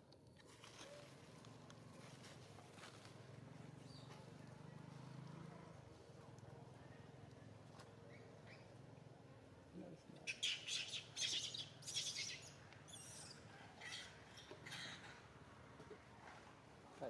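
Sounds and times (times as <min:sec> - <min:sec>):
birds chirping: 0:10.2 - 0:15.3.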